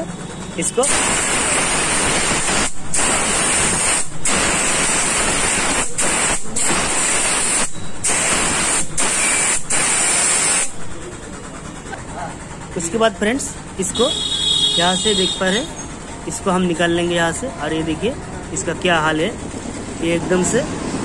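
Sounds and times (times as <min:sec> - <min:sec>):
compressed air hissing from blow-gun: 0:00.8 - 0:10.8.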